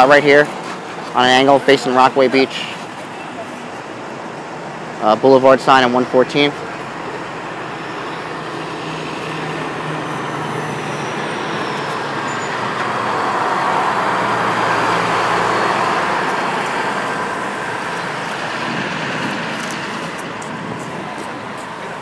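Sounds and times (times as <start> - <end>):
vehicle passing: 5.8 - 22.0.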